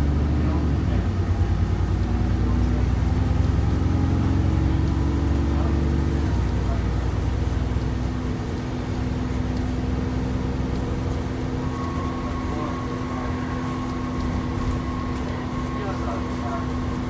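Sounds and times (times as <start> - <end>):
bus drivetrain whining: 0.0 - 17.0
higher whine tone: 11.3 - 17.0.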